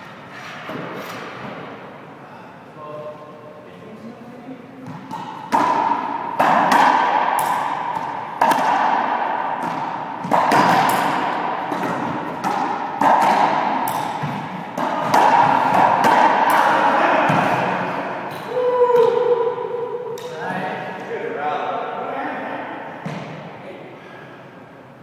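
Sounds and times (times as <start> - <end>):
ball smacking court walls: 4.8 - 18.1, 23.0 - 23.5
racquet hitting ball: 4.8 - 20.6, 22.6 - 23.6.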